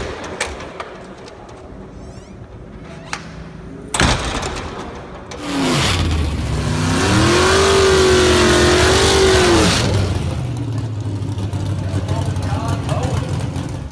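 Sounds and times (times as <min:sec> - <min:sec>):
car engine revving hard: 0:05.4 - 0:10.5.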